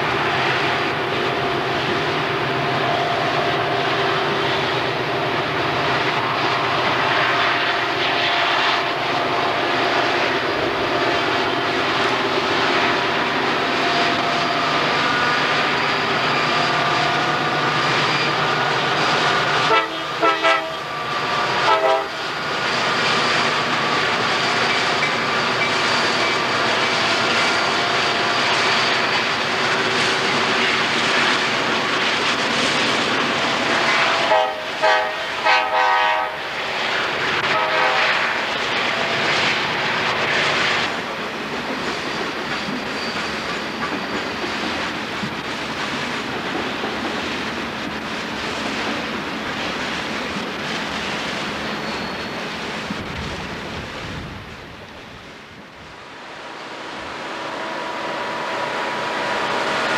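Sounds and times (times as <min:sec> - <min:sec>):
diesel locomotive engines: 0:00.0 - 0:59.9
locomotive horn blasts: 0:19.6 - 0:20.9, 0:21.6 - 0:22.2, 0:33.9 - 0:36.5, 0:37.4 - 0:38.3.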